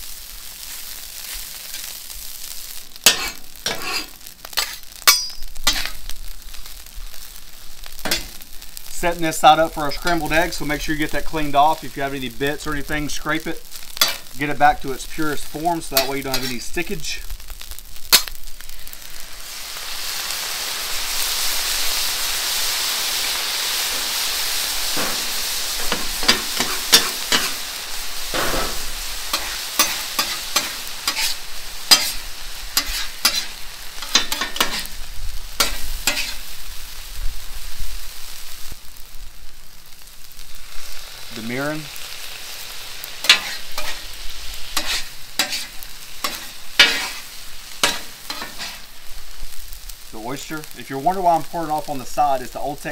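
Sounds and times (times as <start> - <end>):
rice sizzling on a griddle: 0.0 - 52.9
metal spatula scraping a griddle: 0.6 - 12.2, 13.0 - 19.0, 23.2 - 36.6, 41.4 - 49.8.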